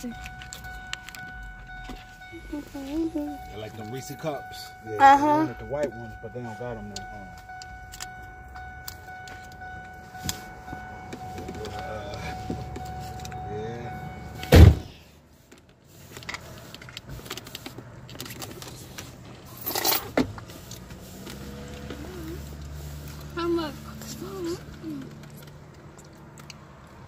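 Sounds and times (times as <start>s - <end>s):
steady high tone: 0.0s - 14.6s.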